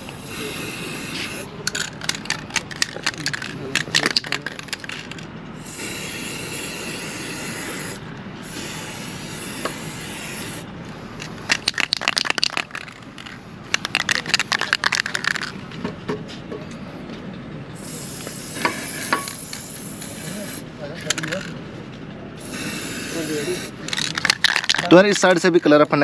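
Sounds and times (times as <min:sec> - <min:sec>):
spray paint can hissing: 0:00.0 - 0:15.6, 0:17.8 - 0:21.6, 0:22.4 - 0:25.2
spray can rattle being shaken: 0:00.2 - 0:07.9, 0:11.2 - 0:15.8, 0:17.9 - 0:21.6, 0:22.5 - 0:25.4.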